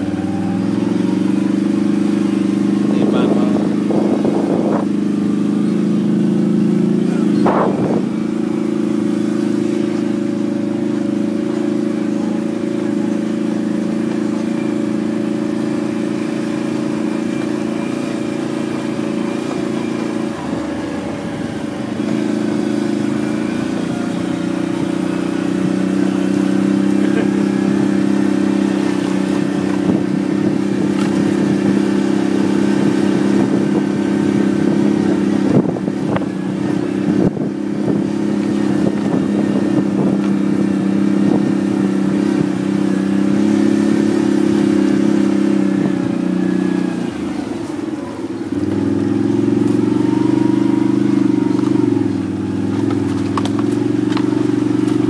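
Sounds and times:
atv engine running: 0:00.0 - 0:55.0.

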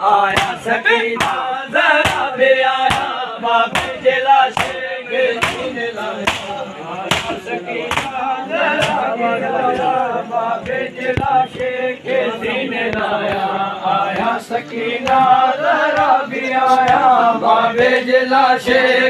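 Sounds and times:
men chanting a lament: 0:00.0 - 0:19.0
chest-beating slaps: 0:02.0 - 0:03.2, 0:03.8 - 0:04.8, 0:05.4 - 0:08.2, 0:08.8 - 0:09.1.

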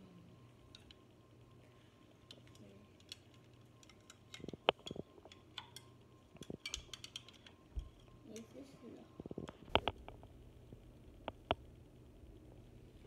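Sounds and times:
spoon tapping plastic cup: 0:06.5 - 0:08.0.

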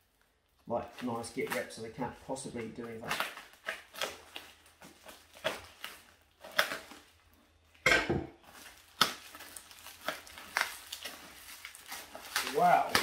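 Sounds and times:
paper and tape rustling: 0:00.0 - 0:07.4, 0:08.4 - 0:13.0
knife slitting parcel tape: 0:03.0 - 0:07.1, 0:08.6 - 0:13.0.

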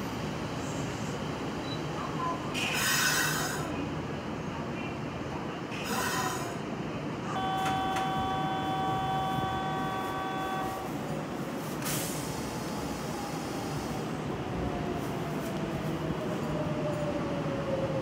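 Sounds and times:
rumble of trains: 0:00.0 - 0:18.0
train horn: 0:07.3 - 0:11.0.

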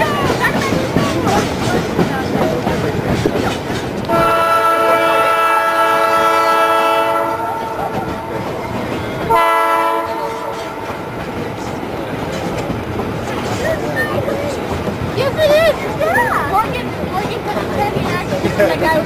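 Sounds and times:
moving train rumble and clatter: 0:00.0 - 0:19.0
train whistle blasts: 0:04.1 - 0:07.8, 0:09.3 - 0:10.6.

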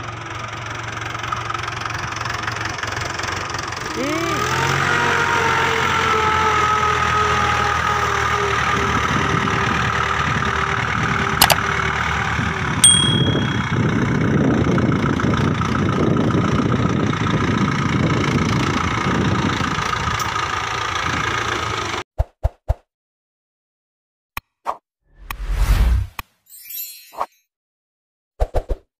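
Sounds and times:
tractor diesel engine running: 0:00.0 - 0:22.0
sharp metallic clink: 0:12.8 - 0:13.8.

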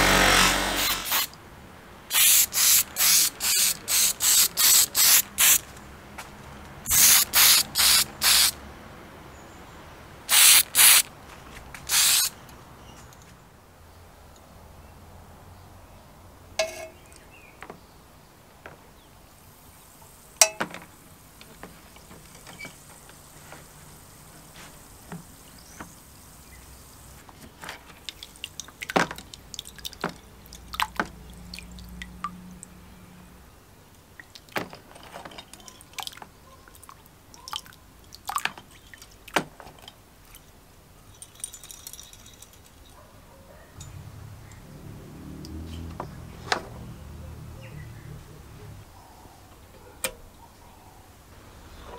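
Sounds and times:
liquid dripping and trickling: 0:27.8 - 0:32.8, 0:34.2 - 0:42.8
light clinks of wire and clips: 0:41.0 - 0:43.0.

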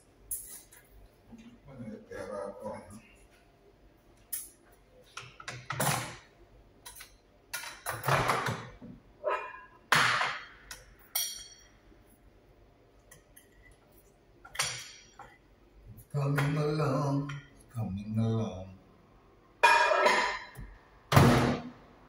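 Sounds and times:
kitchen clicks and knocks: 0:04.4 - 0:11.7, 0:14.5 - 0:15.4, 0:19.6 - 0:21.6.

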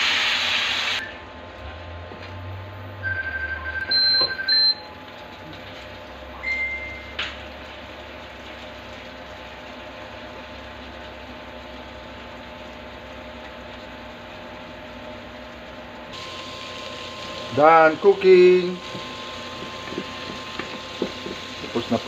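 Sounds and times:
cooktop humming: 0:00.0 - 0:22.0
cooktop beeps: 0:03.0 - 0:05.0, 0:06.3 - 0:07.4, 0:16.2 - 0:22.0.

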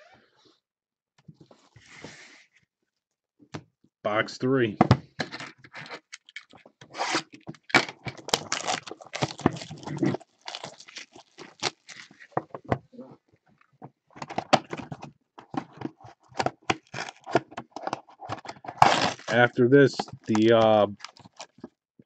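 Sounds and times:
shrink wrap tearing and crinkling: 0:05.9 - 0:12.4, 0:16.6 - 0:17.9, 0:18.8 - 0:21.6.

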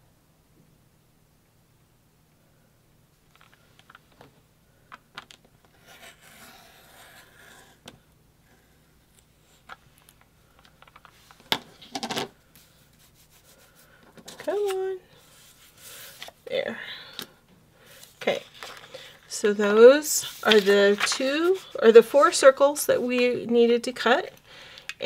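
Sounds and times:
blade scraping around template: 0:05.8 - 0:07.8.

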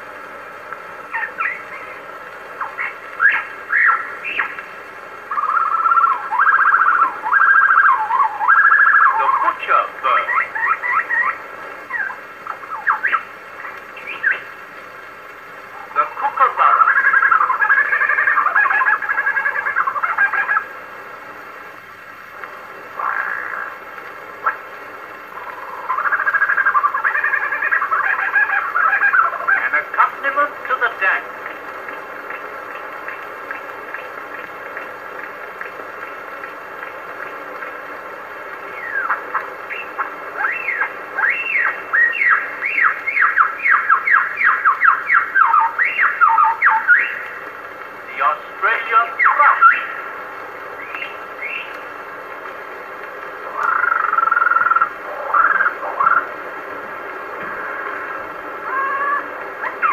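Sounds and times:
record surface hiss: 0:00.0 - 0:59.9
bird singing rapid notes: 0:01.1 - 0:04.6, 0:05.3 - 0:14.6, 0:38.7 - 0:47.3, 0:50.8 - 0:51.8.

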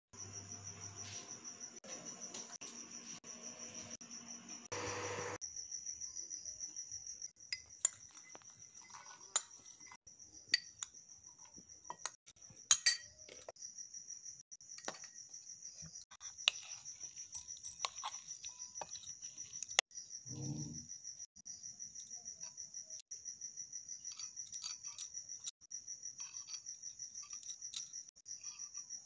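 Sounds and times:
cricket chirping: 0:00.2 - 0:29.0
metal spoon scraping steel bowls: 0:07.5 - 0:13.5, 0:16.2 - 0:19.8.

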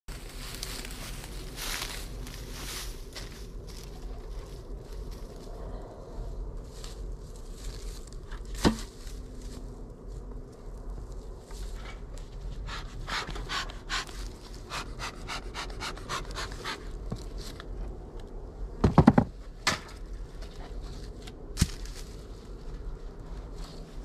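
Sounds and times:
hard knocks of bricks and lid: 0:18.8 - 0:20.0.

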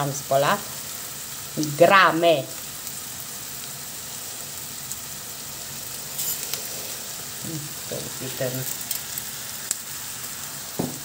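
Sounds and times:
onions sizzling in oil: 0:00.0 - 0:11.0
rice pouring into pan: 0:02.6 - 0:11.0.

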